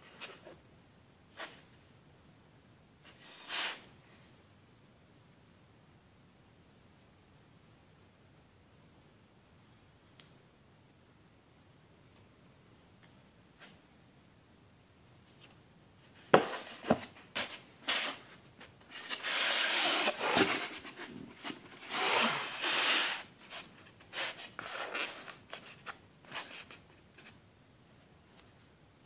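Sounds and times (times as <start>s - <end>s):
scraping and rubbing on foam: 16.4s - 27.4s.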